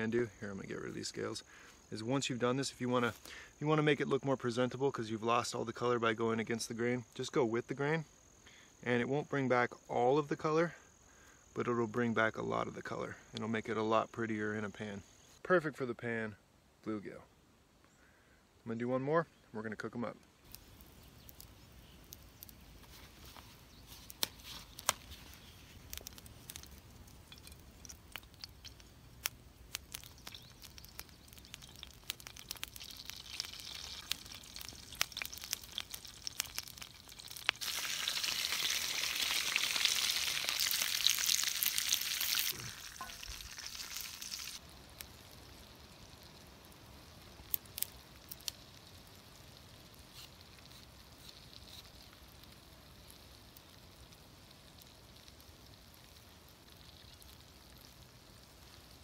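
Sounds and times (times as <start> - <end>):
fish sizzling in skillet: 20.4 - 59.0.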